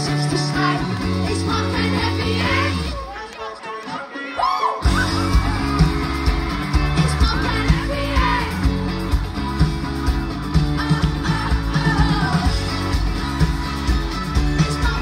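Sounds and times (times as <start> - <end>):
live pop-rock band playing: 0.0 - 3.1, 4.8 - 15.0
steady drum beat: 4.8 - 15.0
person singing: 6.7 - 8.7, 10.7 - 15.0.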